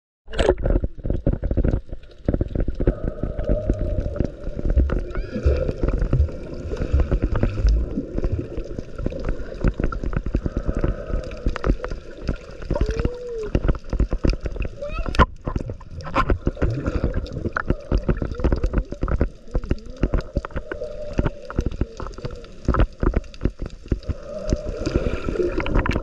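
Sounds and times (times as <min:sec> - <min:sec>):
crackling clicks: 0:00.3 - 0:26.0
water gurgling and sloshing: 0:00.3 - 0:26.0
low thumps: 0:04.6 - 0:08.5.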